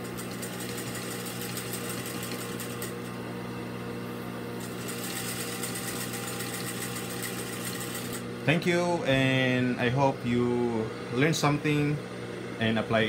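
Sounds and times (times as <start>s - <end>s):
sewing machine stitching: 0.0s - 3.0s, 4.6s - 8.2s.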